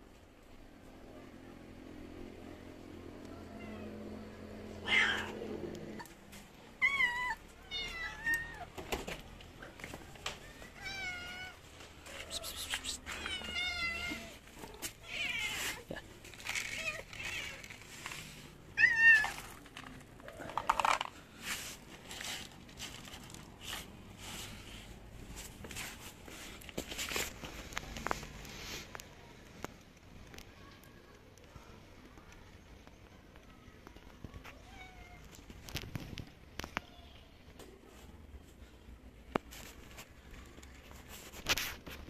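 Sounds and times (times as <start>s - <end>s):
cats meowing: 4.8s - 6.1s, 6.8s - 8.8s, 10.4s - 17.8s, 18.7s - 19.6s.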